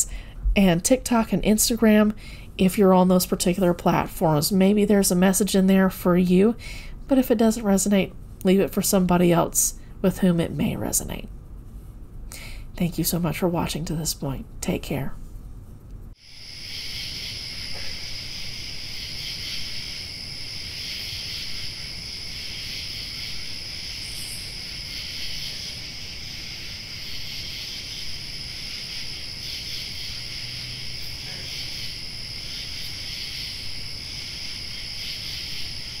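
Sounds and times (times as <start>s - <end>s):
crickets and night insects chirping: 16.2s - 36.0s.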